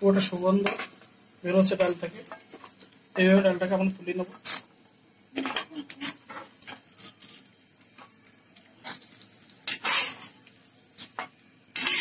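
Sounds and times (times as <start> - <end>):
metal spatula scraping a pan: 0.2 - 1.0, 5.4 - 7.2, 8.8 - 10.4, 11.0 - 12.0.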